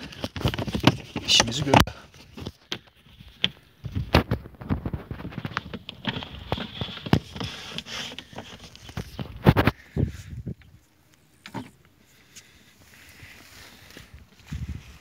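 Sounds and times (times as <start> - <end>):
footsteps in dry grass: 12.0 - 15.0.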